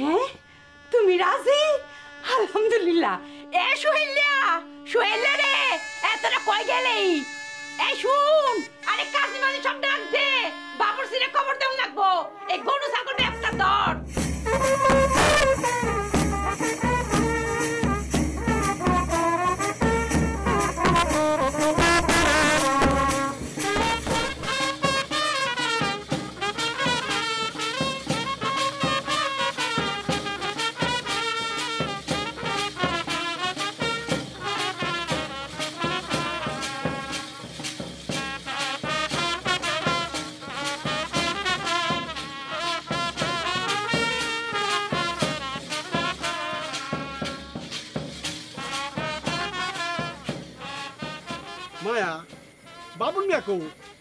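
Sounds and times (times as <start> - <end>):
trumpets playing melody: 0.0 - 54.0
drum beat: 13.2 - 54.0.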